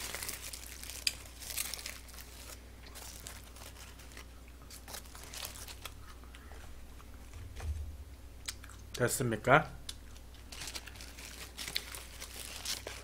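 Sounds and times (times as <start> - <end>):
foil wrapper crinkling: 0.0 - 6.2, 10.1 - 13.0.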